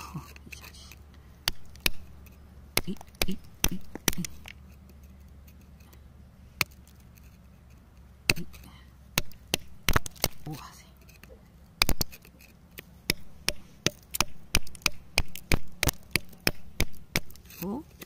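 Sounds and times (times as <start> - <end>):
metal chisel picking at rock: 8.3 - 18.0.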